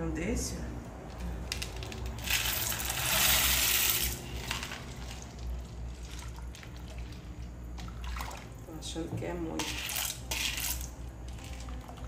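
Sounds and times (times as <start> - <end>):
pasta pouring into soup: 1.5 - 8.6.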